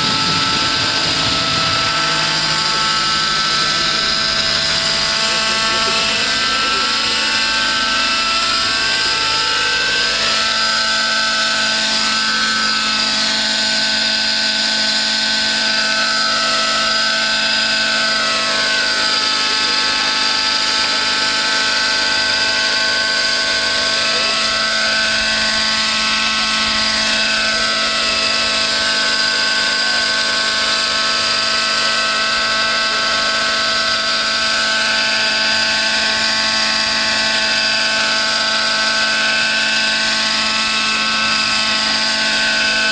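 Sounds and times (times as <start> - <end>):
model helicopter engine whine: 0.0 - 42.9.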